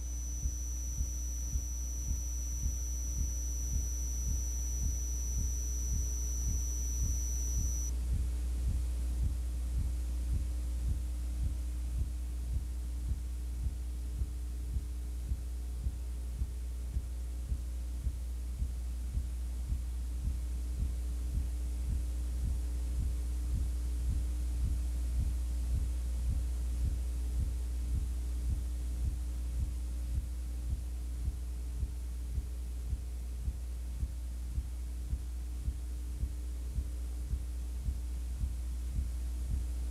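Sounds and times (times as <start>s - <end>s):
thin high whine: 0.0s - 7.9s
pulsing low electrical hum: 0.0s - 39.9s.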